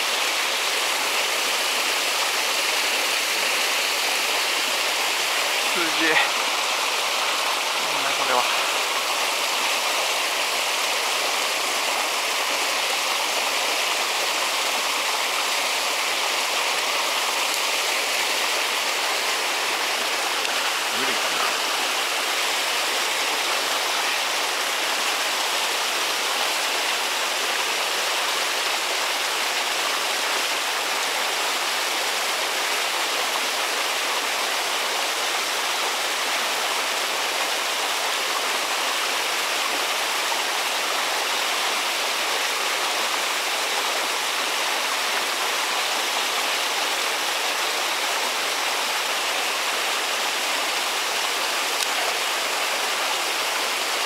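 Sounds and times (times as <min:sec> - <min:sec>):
flowing water rushing: 0:00.0 - 0:54.0.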